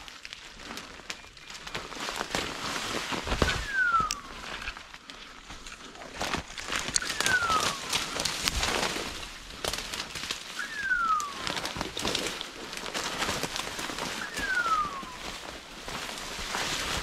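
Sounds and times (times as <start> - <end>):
footsteps through dry leaves: 0.0 - 17.0
high falling whistle-like call: 3.4 - 4.5, 7.0 - 8.2, 10.6 - 11.7, 14.2 - 15.4.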